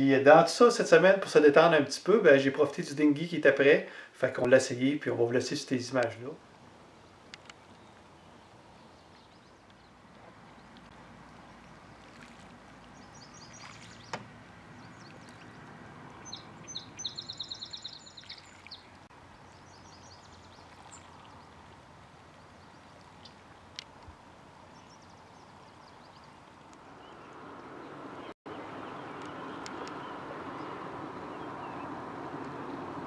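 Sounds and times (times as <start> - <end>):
water: 0.0 - 33.0
wind: 0.0 - 33.0
small bird trilling: 16.2 - 18.8.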